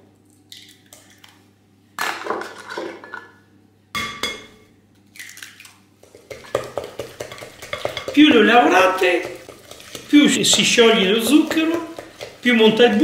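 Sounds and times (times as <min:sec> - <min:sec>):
eggs knocking on glass bowl: 0:06.3 - 0:12.8.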